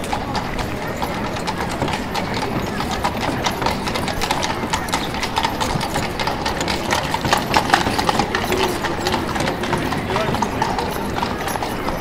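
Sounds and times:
horse hooves clip-clopping: 0.0s - 12.0s.

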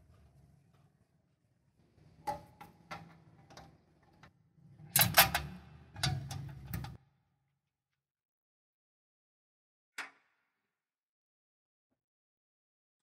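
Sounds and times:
metal parts clicking and clanking: 4.9s - 7.0s.

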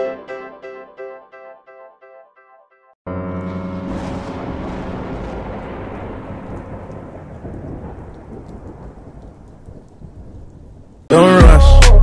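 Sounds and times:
rumble of thunder: 3.3s - 11.1s.

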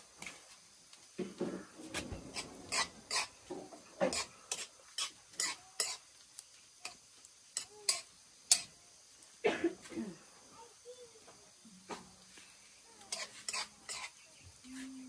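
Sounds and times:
spoon scraping a pan: 1.5s - 6.1s, 7.6s - 8.7s, 13.0s - 14.2s.

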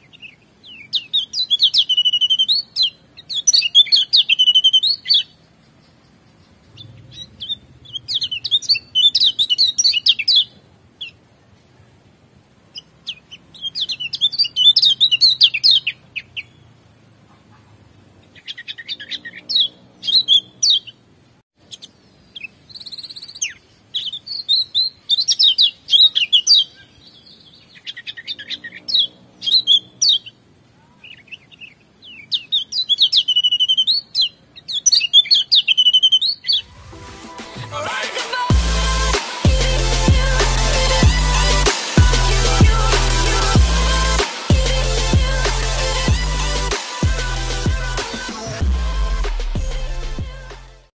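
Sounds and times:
bird twittering song: 0.0s - 12.0s, 12.7s - 16.7s, 18.2s - 21.0s, 21.6s - 36.7s.

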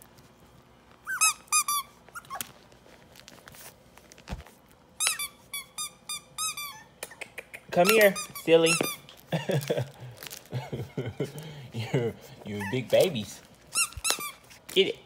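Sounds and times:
squeaky toy squeaks: 1.0s - 2.4s, 5.0s - 7.0s, 7.8s - 9.1s, 13.7s - 14.5s.

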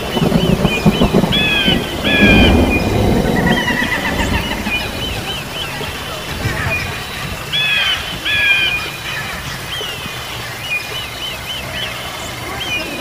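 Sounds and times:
steady low rumble: 0.1s - 8.5s.

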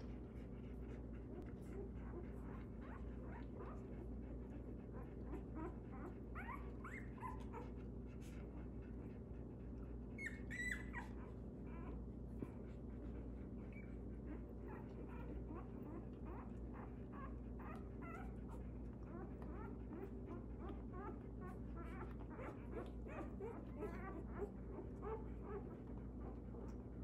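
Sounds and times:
steady low hum: 0.0s - 27.0s
puppies squeaking and whimpering: 5.0s - 7.8s, 10.2s - 12.7s, 13.6s - 26.8s
puppy squealing: 5.3s - 7.7s, 10.2s - 12.0s, 13.7s - 25.7s.

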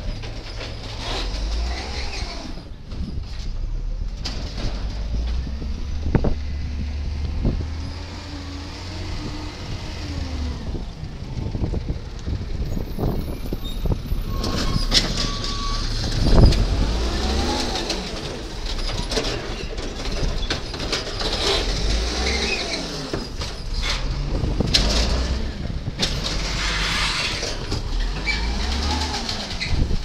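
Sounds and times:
garbage truck engine revving: 3.8s - 30.0s
hydraulic arm clanks and knocks: 17.6s - 22.0s.

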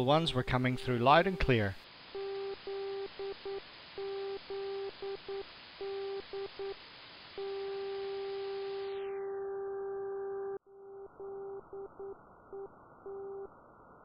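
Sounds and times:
morse code tone: 0.0s - 6.8s, 7.4s - 8.8s
radio hiss: 0.0s - 9.4s.

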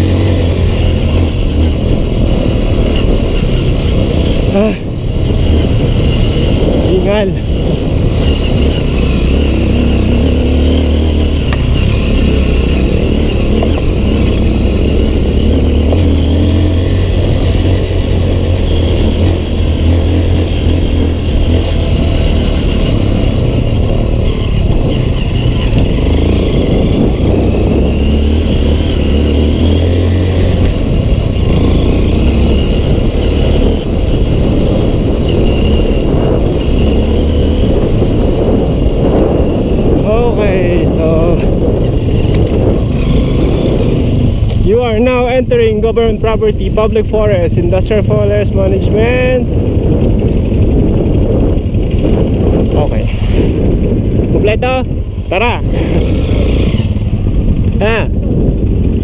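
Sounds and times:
motorcycle engine revving: 0.0s - 59.0s.

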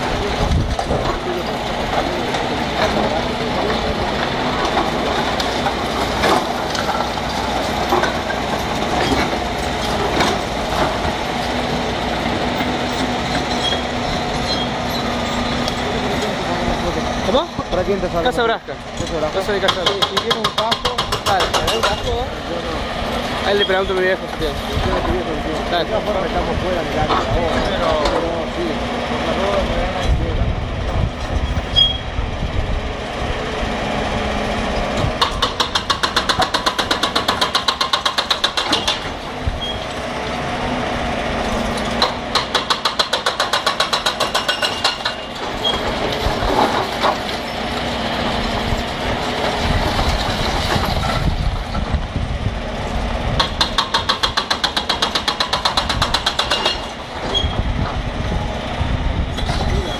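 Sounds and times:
excavator engine running: 0.0s - 59.9s
hydraulic breaker hammering brick: 19.5s - 22.3s, 35.0s - 39.8s, 41.9s - 47.3s, 53.4s - 57.6s.

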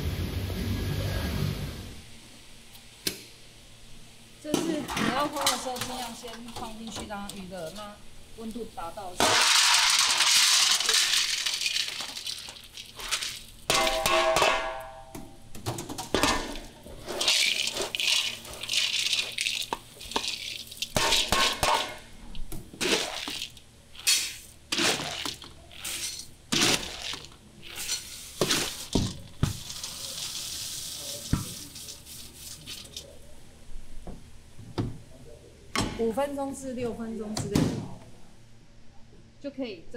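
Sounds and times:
dry nuts rattling in metal bowl: 9.2s - 14.0s, 17.1s - 21.6s.

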